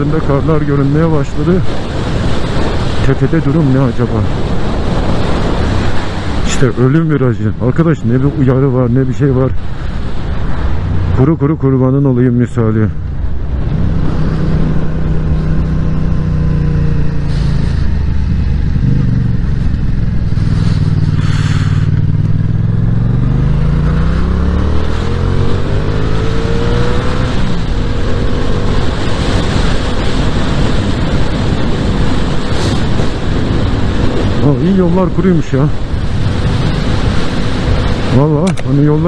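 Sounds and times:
wind rush: 0.0 - 39.0
motorcycle engine running: 13.5 - 34.5.

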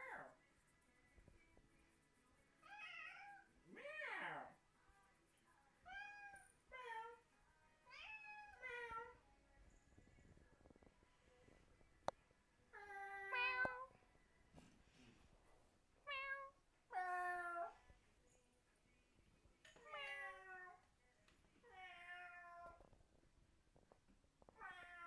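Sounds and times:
cat meowing: 24.6 - 25.0.

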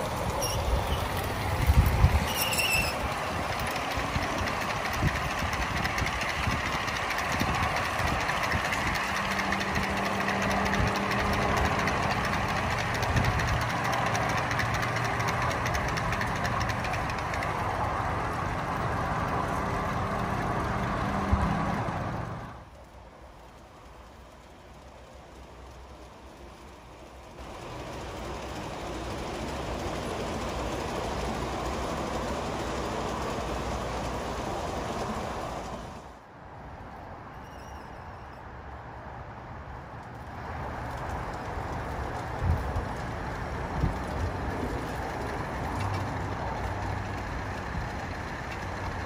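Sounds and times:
model train wheels rattling on rails: 0.0 - 36.2, 40.0 - 49.0.

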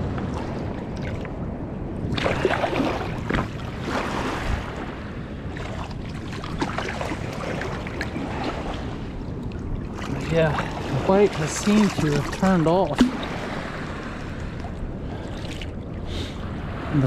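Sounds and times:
river water splashing: 2.0 - 17.0
steady low rumble: 4.6 - 17.0.

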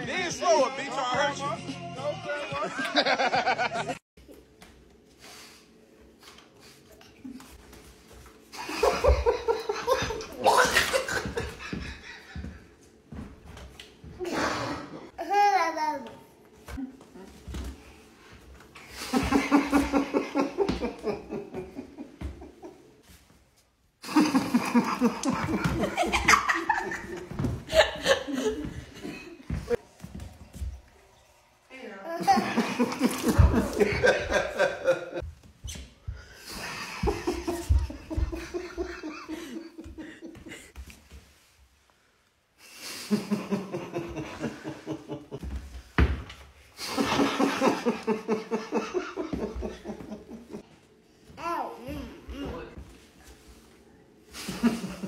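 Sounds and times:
people laughing: 2.5 - 4.0, 8.6 - 12.6, 19.0 - 22.9, 24.0 - 29.8, 32.2 - 35.2, 36.5 - 40.7, 43.1 - 45.4, 46.8 - 50.6, 54.4 - 55.0.

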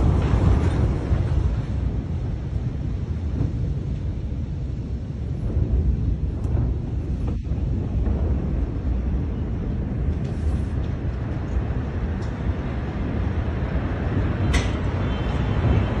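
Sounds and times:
low rumble after explosion: 0.0 - 14.2.

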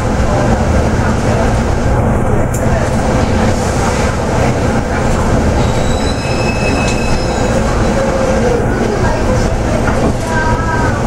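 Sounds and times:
bus engine and road rumble: 0.0 - 11.0
short high-pitched squeals: 5.6 - 7.7.

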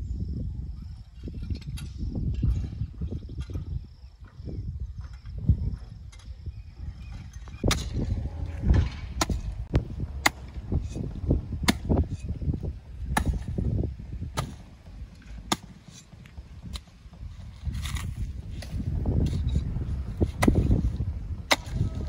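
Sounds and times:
shovel scraping gravel: 14.4 - 21.9.

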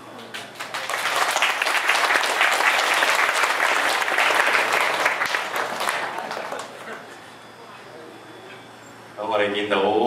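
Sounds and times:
audience applauding: 0.2 - 7.2.

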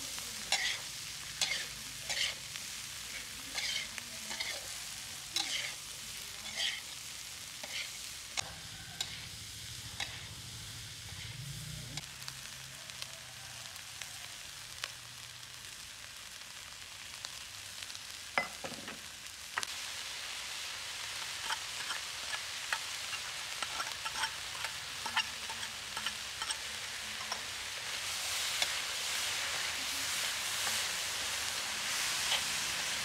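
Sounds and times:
corn sizzling in a wok: 0.0 - 33.0
metal spatula scraping a pan: 0.4 - 2.5, 3.1 - 4.7, 5.4 - 7.0, 7.6 - 9.3, 10.0 - 10.3, 11.0 - 11.4, 21.2 - 31.2, 31.8 - 33.0.

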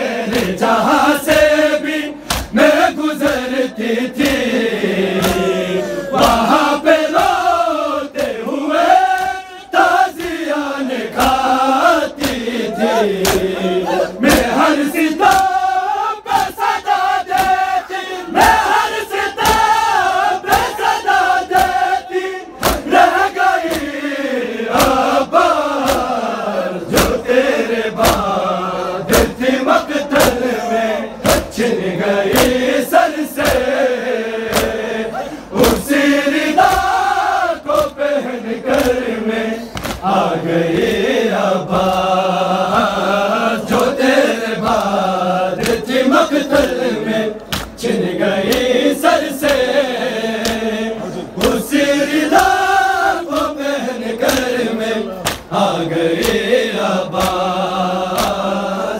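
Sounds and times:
crowd chanting: 0.0 - 58.9
men chanting a lament: 0.0 - 58.9
hands slapping chests: 0.2 - 0.6, 2.2 - 3.5, 4.2 - 5.5, 8.1 - 15.7, 16.3 - 17.7, 18.4 - 19.8, 20.4 - 20.8, 21.4 - 21.9, 22.6 - 24.0, 24.7 - 26.2, 26.9 - 27.3, 28.0 - 28.4, 29.1 - 30.4, 31.2 - 31.6, 32.3 - 33.8, 34.5 - 34.8, 35.6 - 38.0, 38.6 - 39.1, 39.7 - 40.2, 41.7 - 42.1, 43.6 - 44.0, 45.6 - 50.7, 51.4 - 53.6, 54.2 - 55.6, 56.2 - 58.5.

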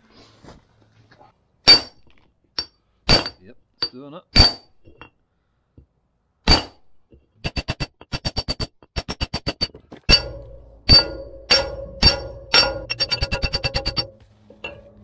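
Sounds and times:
hammer striking metal drift: 1.7 - 5.1, 6.5 - 15.0.

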